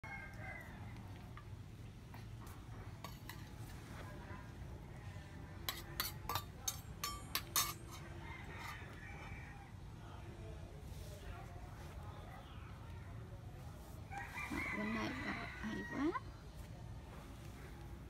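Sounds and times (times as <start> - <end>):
sharp clinks and knocks: 5.7 - 8.0.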